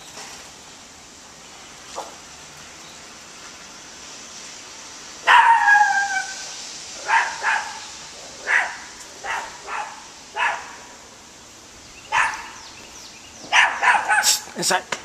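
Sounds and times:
dog barking: 0:05.2 - 0:06.3, 0:07.0 - 0:07.8, 0:08.4 - 0:10.8, 0:12.1 - 0:12.6, 0:13.5 - 0:14.4.

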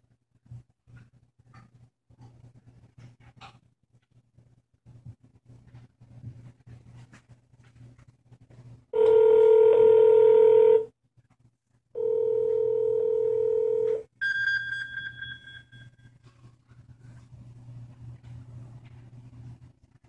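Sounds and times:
mobile phone trilling ring: 0:09.0 - 0:10.9, 0:12.0 - 0:16.1
telephone ringback tone: 0:09.0 - 0:10.9, 0:12.0 - 0:16.0.

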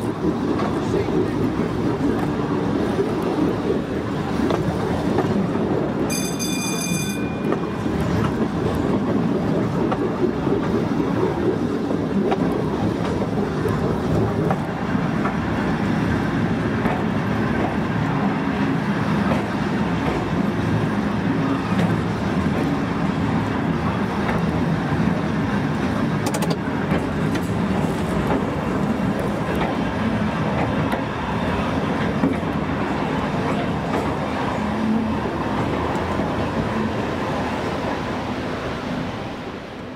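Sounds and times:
train wheels rumbling on rail: 0:00.0 - 0:39.9.

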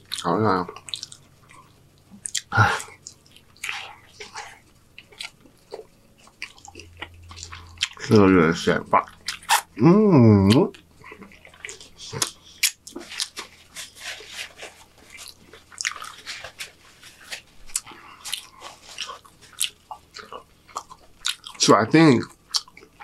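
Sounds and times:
wet lip smacking: 0:09.0 - 0:09.8
short vocal sound: 0:09.5 - 0:10.7
paper napkin crackling: 0:13.0 - 0:19.5.

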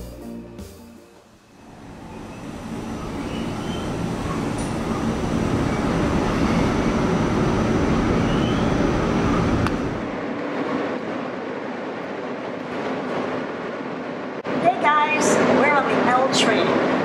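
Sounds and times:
subway train rumbling: 0:00.0 - 0:17.0
wheel squeals: 0:02.0 - 0:06.9, 0:08.2 - 0:08.8.

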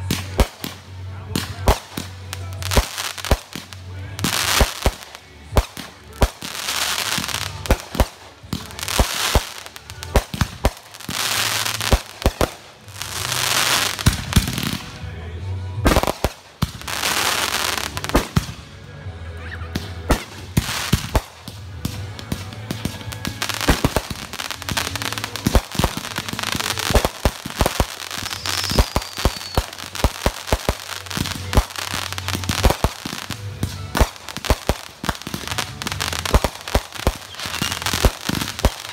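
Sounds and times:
fireworks bangs and crackling: 0:00.0 - 0:18.8, 0:19.5 - 0:38.9
fireworks hissing rushes: 0:06.0 - 0:15.0, 0:20.1 - 0:38.9.

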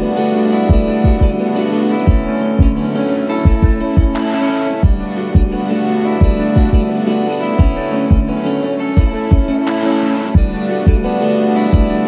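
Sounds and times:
held synth chords: 0:00.0 - 0:12.0
deep kick drum beat: 0:00.7 - 0:01.4, 0:02.1 - 0:04.2, 0:04.8 - 0:05.6, 0:06.2 - 0:06.9, 0:07.6 - 0:08.4, 0:09.0 - 0:09.7, 0:10.4 - 0:11.1, 0:11.7 - 0:12.0.

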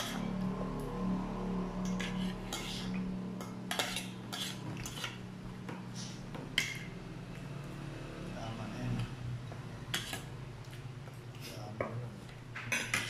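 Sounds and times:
cutlery scraping a plate: 0:00.0 - 0:00.3, 0:01.8 - 0:07.0, 0:09.9 - 0:10.8, 0:12.6 - 0:13.0.

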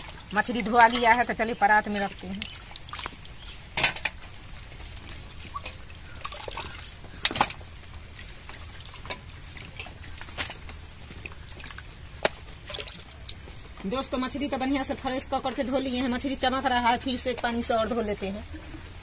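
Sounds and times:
water trickling into steel bowl: 0:00.0 - 0:13.5.

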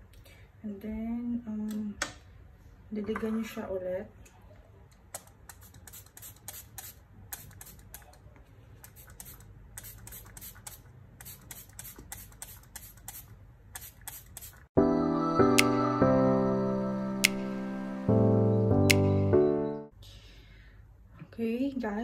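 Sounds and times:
spray bottle spritzing: 0:05.2 - 0:08.1, 0:08.8 - 0:14.7.

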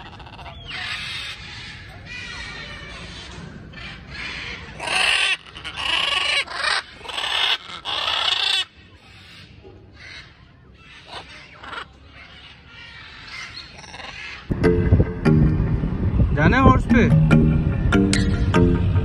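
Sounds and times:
macaws squawking: 0:00.0 - 0:14.5.

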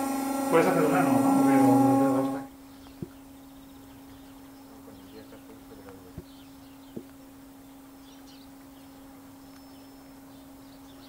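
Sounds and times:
steady low hum: 0:00.0 - 0:11.0
faint bird chirps: 0:02.5 - 0:11.0.

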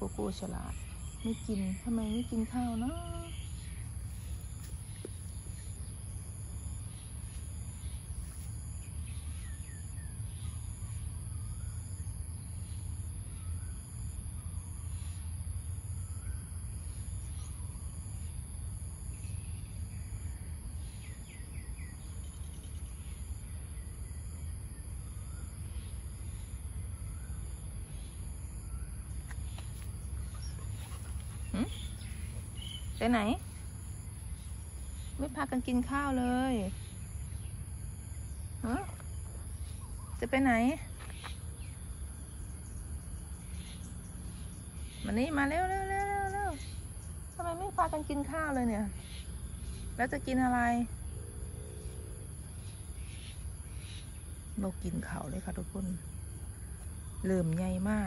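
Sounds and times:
pulsing insect call: 0:00.0 - 0:58.0
faint bird chirps: 0:19.1 - 0:58.0.

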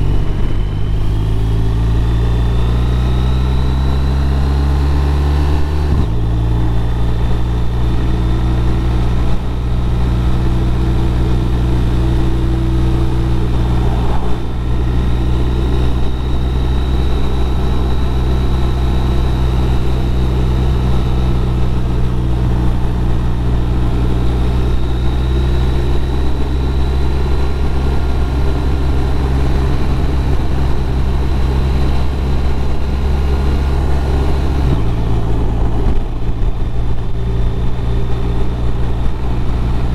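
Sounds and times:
motorcycle engine cruising: 0:00.0 - 0:39.9
wind rush: 0:11.9 - 0:15.5.

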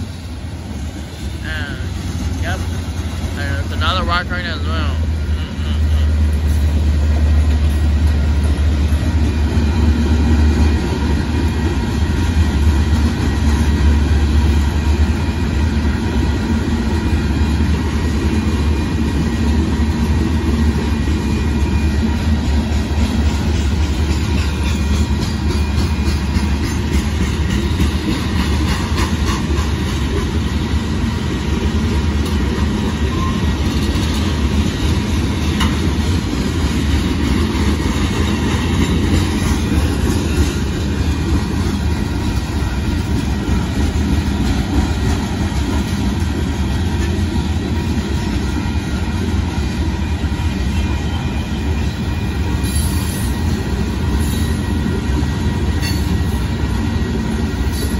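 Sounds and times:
freight train wheels rumbling: 0:00.0 - 0:57.9.

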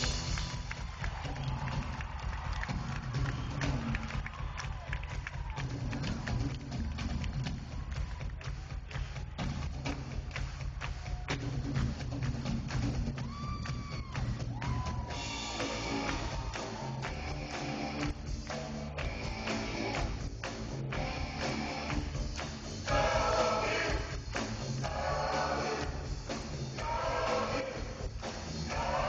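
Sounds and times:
live rock band playing: 0:15.0 - 0:24.8
person singing: 0:22.9 - 0:24.2, 0:24.8 - 0:26.1, 0:26.7 - 0:28.0, 0:28.6 - 0:29.0.

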